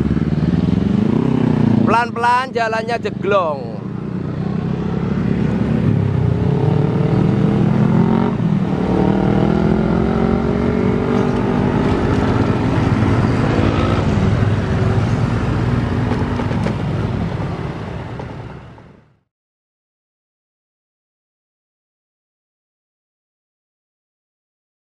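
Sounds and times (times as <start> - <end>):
small motorcycle engines passing: 3.8 - 18.0
car engine passing: 4.0 - 18.8.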